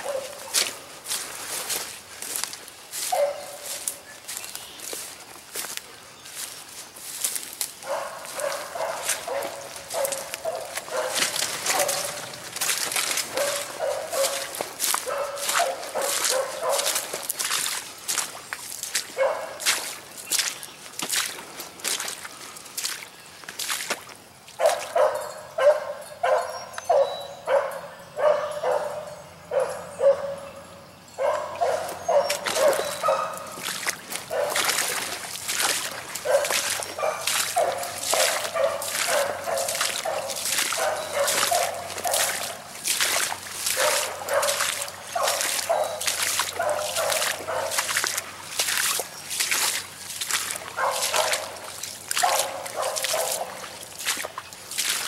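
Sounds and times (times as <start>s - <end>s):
dog baying: 0.0s - 0.5s, 7.9s - 12.3s, 13.3s - 17.0s, 31.2s - 33.6s, 36.3s - 42.6s.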